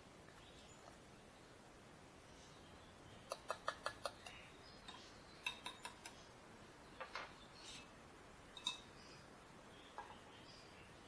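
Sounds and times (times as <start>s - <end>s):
spoon clinking in cup: 8.6s - 8.9s.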